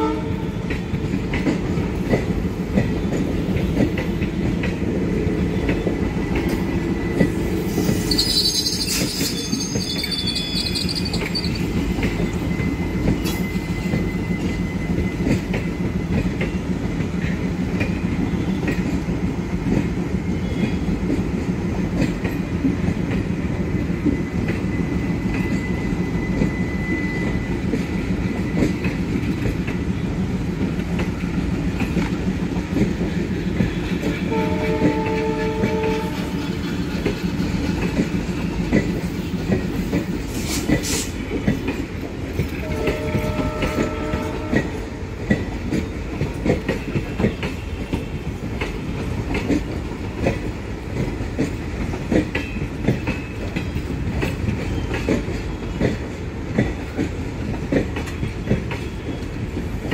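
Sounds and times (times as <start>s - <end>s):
train wheels rumbling on rails: 0.0s - 59.9s
high wheel squeal: 7.0s - 15.2s.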